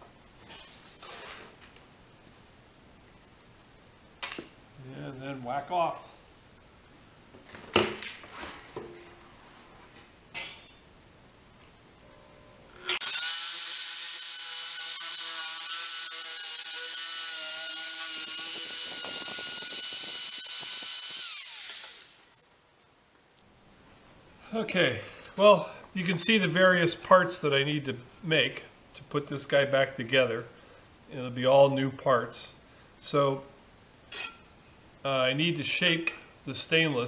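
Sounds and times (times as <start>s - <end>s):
electric metal shear motor whine: 12.0s - 22.4s.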